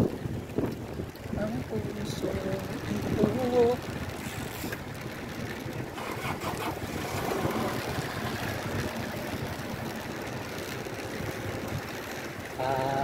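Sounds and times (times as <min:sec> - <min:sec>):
wind buffeting microphone: 0:00.0 - 0:13.0
tyres hissing on wet asphalt: 0:06.0 - 0:10.2.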